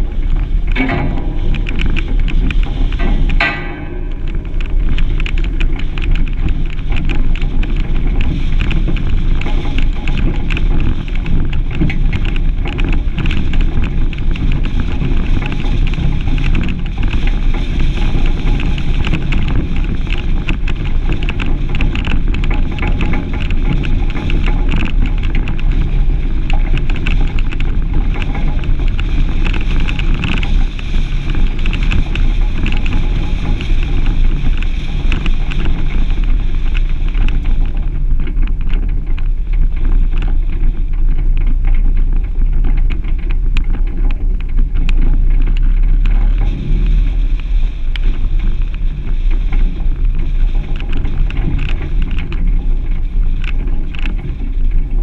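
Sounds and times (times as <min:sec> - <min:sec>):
tyres rattling on gravel: 0:00.0 - 0:55.0
vehicle rumble: 0:00.0 - 0:55.0
wind buffeting microphone: 0:00.0 - 0:55.0.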